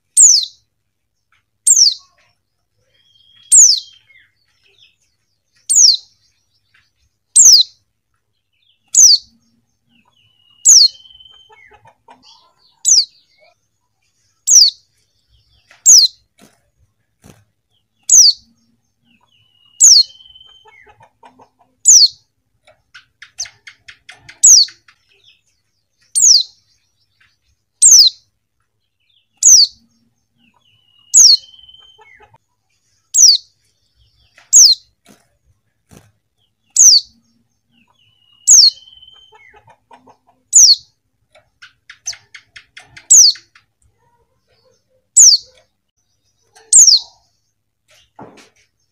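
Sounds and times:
soft bird chirps: 0.0 - 48.9.

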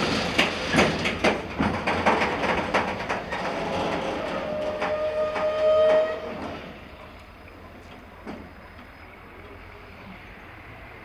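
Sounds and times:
train wheels clacking on rails: 0.0 - 10.7
train horn: 3.4 - 6.8.

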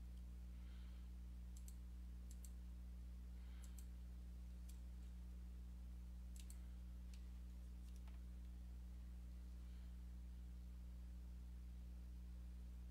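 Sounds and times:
low electrical hum: 0.0 - 12.9
sharp clicks: 1.6 - 2.6, 6.3 - 7.2.

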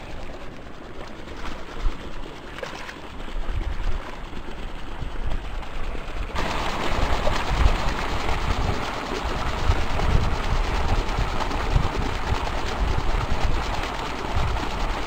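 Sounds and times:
fish splashing at surface: 2.5 - 3.1
wind buffeting microphone: 7.1 - 15.0.

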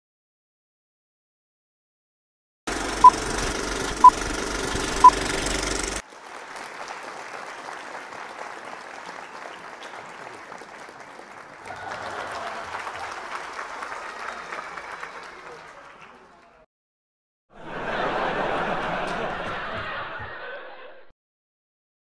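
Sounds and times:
film projector running: 2.7 - 6.0.

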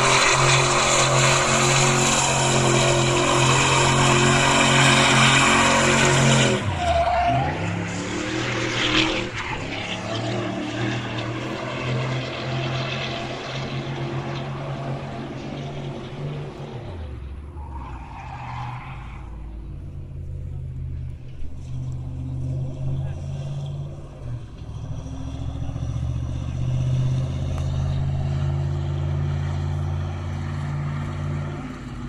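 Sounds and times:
tyres screeching: 0.0 - 10.3
car engine at high revs: 0.0 - 32.0.

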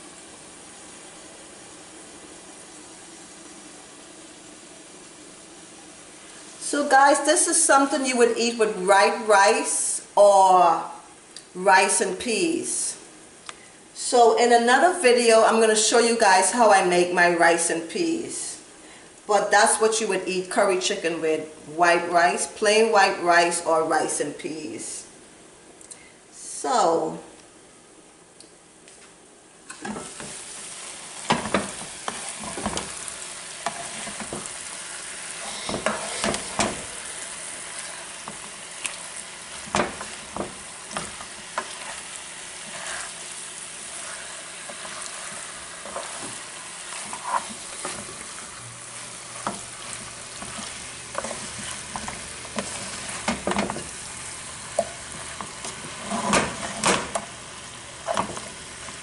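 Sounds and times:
chicken sizzling in a frying pan: 0.0 - 10.0, 29.7 - 59.0
spatula scraping and knocking pan: 31.2 - 33.0, 33.6 - 34.6, 35.4 - 37.0, 39.6 - 43.2, 43.9 - 54.0, 54.7 - 57.3, 58.0 - 58.6.

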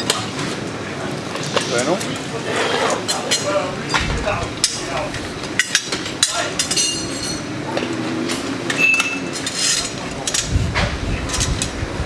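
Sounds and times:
metallic clinks of tyre levers: 8.7 - 10.5.

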